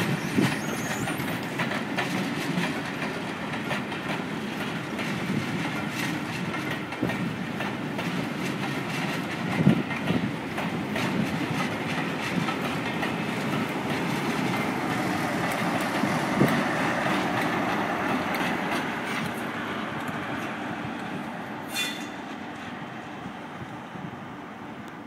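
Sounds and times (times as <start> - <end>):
high wheel squeal: 0.0 - 1.7, 21.7 - 22.2
train wheels clattering: 0.0 - 22.7.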